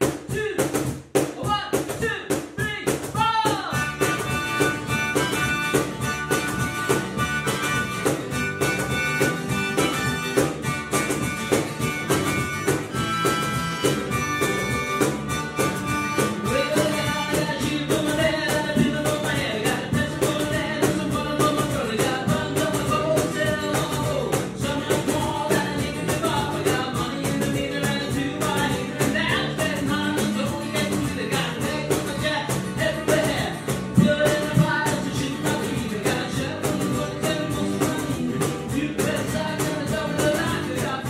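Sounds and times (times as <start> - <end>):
rock band playing with singing: 0.0 - 41.0.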